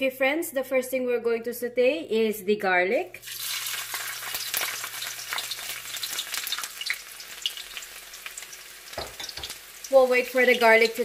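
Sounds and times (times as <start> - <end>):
garlic sizzling in oil: 3.2 - 11.0.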